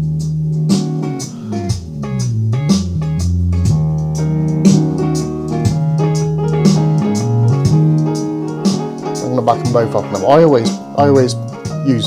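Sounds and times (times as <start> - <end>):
music with strong bass and beat: 0.0 - 12.0.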